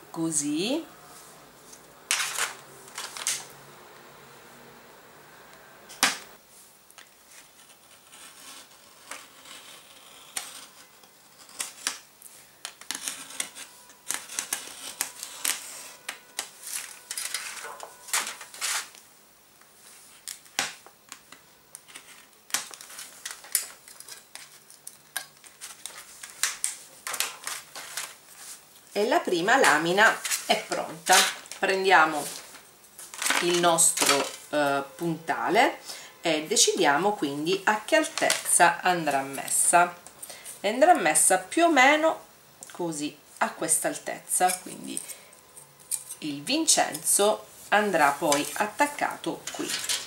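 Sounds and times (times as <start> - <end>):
stylus scraping on foil: 7.4 - 12.0, 12.7 - 19.0, 45.8 - 50.0.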